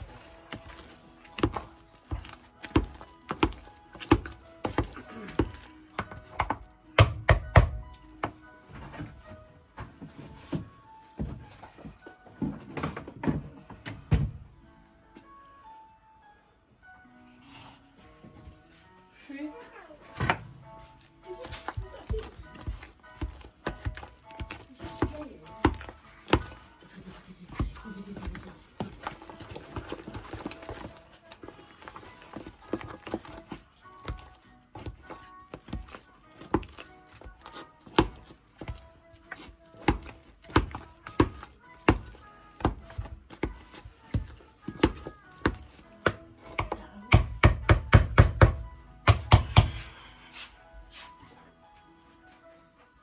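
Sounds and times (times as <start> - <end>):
background music: 0.0 - 53.0
potato masher knocking on pot: 46.0 - 49.7.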